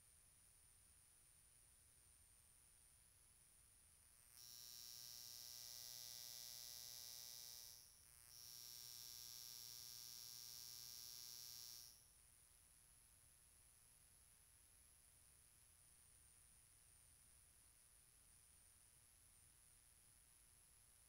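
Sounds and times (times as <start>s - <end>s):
high-pitched insect buzz: 4.3s - 12.1s.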